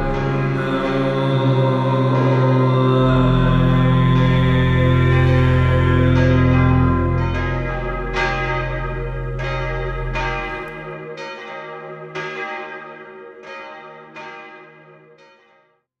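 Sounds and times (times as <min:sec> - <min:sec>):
low sustained drone: 0:00.0 - 0:11.0
bell ringing: 0:06.5 - 0:11.5.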